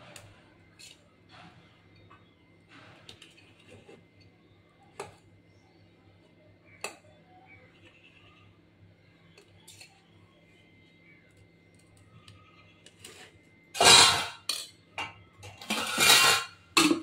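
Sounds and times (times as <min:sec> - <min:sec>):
metal spoon scraping a steel pot: 0:12.8 - 0:14.8, 0:15.5 - 0:17.0.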